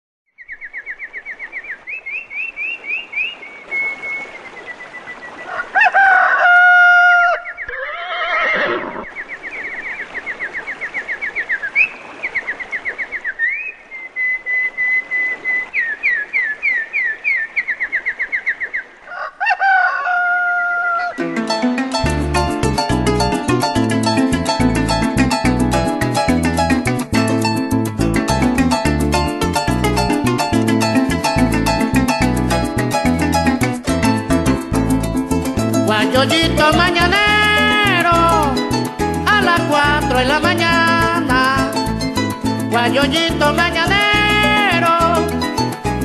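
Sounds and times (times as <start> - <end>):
rooster crowing: 5.5 - 8.6, 19.1 - 21.2.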